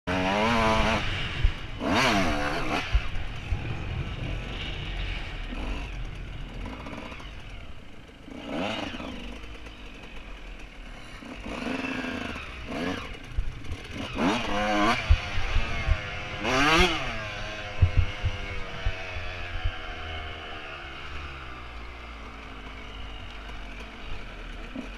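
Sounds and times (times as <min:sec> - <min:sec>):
two-stroke motocross engine revving: 0:00.1 - 0:24.9.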